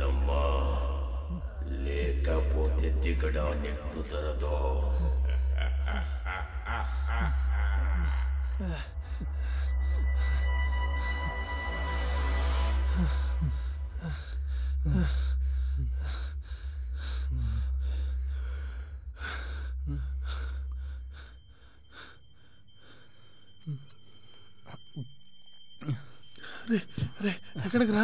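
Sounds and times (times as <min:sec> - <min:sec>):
low steady hum: 0:00.0 - 0:28.0
man breathing heavily: 0:05.0 - 0:11.8, 0:12.4 - 0:27.7.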